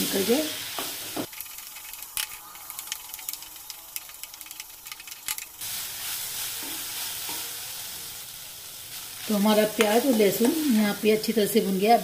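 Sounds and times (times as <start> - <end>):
onions sizzling in oil: 0.0 - 12.0
spoon scraping a pan: 0.8 - 8.2.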